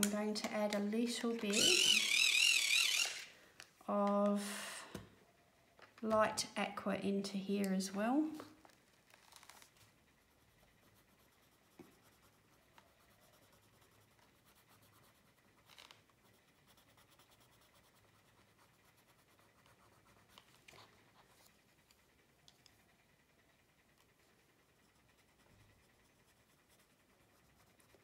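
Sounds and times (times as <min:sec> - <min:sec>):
pencil scratching on paper: 0:10.2 - 0:22.1, 0:24.0 - 0:28.0.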